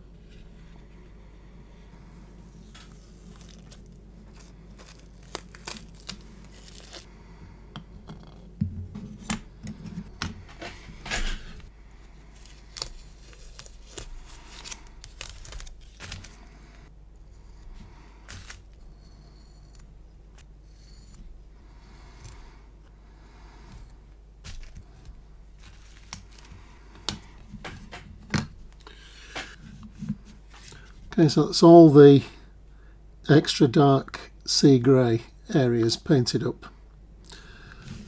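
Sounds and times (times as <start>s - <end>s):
masking tape peeling: 2.8s - 7.1s, 12.3s - 16.5s.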